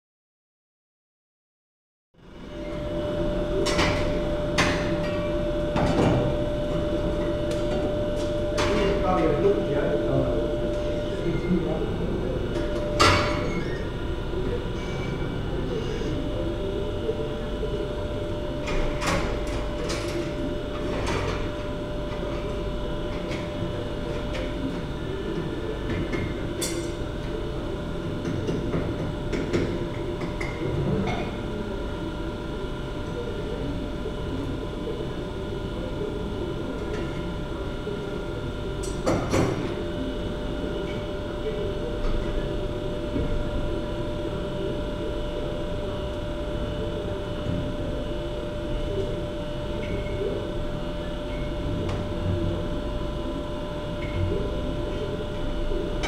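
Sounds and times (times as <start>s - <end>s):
forge blower humming: 2.2s - 56.0s.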